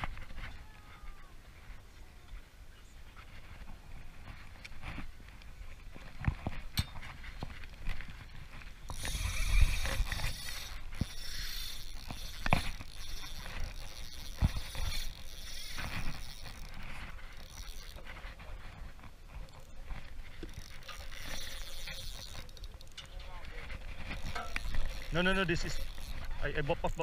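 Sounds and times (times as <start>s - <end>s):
fishing reel gears whirring: 7.5s - 27.0s.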